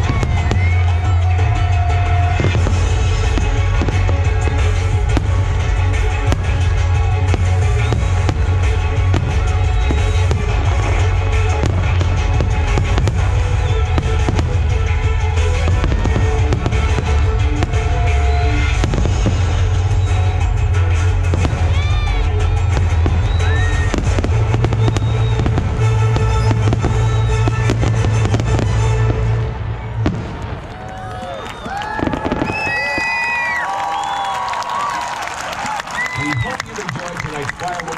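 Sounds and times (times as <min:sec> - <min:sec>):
loud music with heavy bass: 0:00.0 - 0:29.7
deep rumble: 0:00.0 - 0:30.9
crowd cheering: 0:00.0 - 0:37.9
fireworks bangs: 0:00.0 - 0:37.9.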